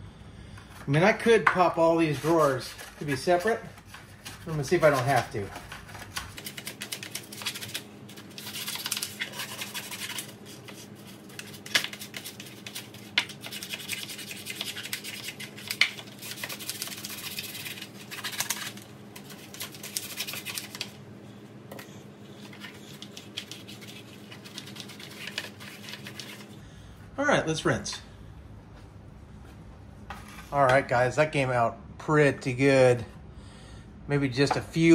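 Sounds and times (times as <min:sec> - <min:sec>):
toothbrush scrubbing plastic: 0:01.8 - 0:21.0, 0:22.3 - 0:26.6.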